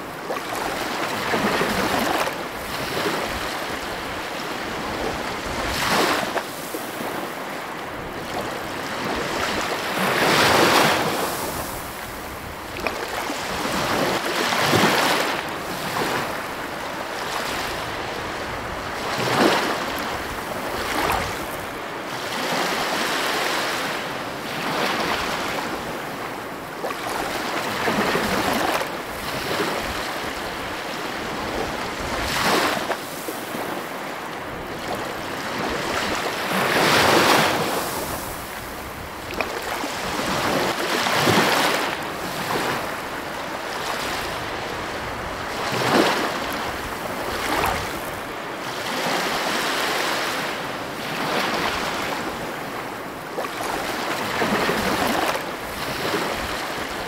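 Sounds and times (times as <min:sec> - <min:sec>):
sea waves breaking: 0:00.0 - 0:57.0.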